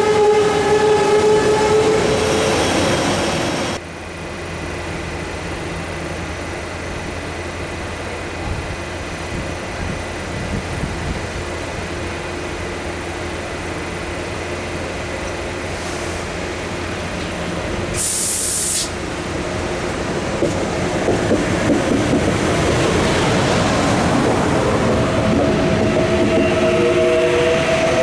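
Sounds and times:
electric train pulling in: 0.0 - 28.0
short hiss: 17.9 - 19.0.

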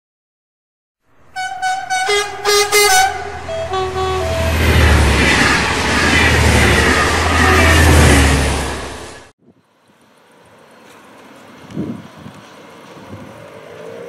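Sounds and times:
horn short toots: 1.4 - 4.6, 7.2 - 8.4
steady low rumble: 3.1 - 9.2.

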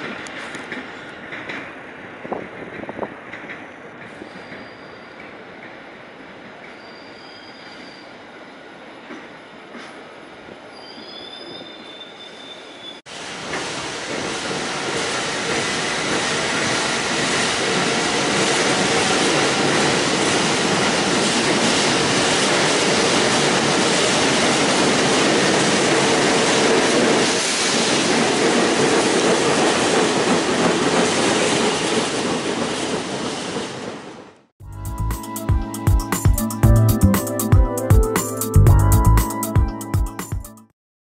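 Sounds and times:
train wheels clattering on rails: 0.0 - 6.9, 9.1 - 10.1, 13.3 - 34.3.

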